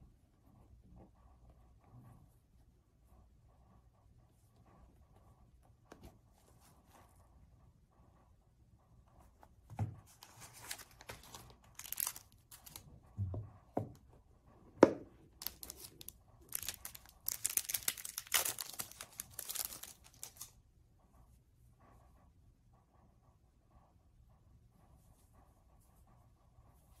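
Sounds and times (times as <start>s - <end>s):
plastic and paper crinkling: 10.0s - 12.8s, 15.4s - 20.5s.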